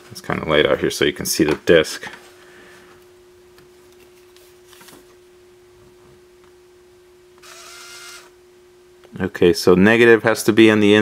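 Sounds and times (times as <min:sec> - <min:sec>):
small motor whining: 0:07.4 - 0:08.3.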